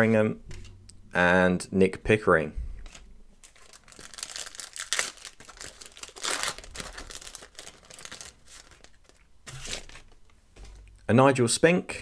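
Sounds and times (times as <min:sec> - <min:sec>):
foil wrapper crinkling and tearing: 0:02.8 - 0:10.3.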